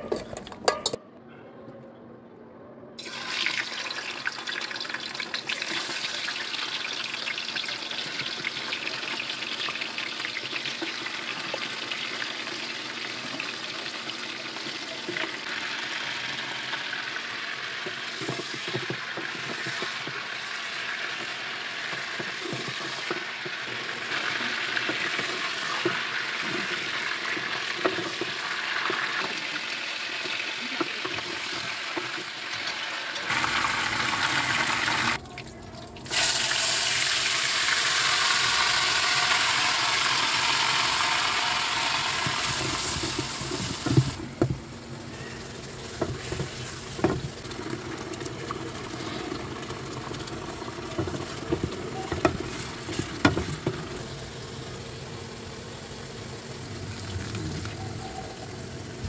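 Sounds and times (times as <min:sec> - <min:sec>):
spatula knocking and scraping pan: 0:00.0 - 0:01.0, 0:17.8 - 0:29.4, 0:45.8 - 0:47.8, 0:50.9 - 0:54.0
oil sizzling in a wok: 0:03.0 - 0:35.2, 0:36.0 - 0:59.0.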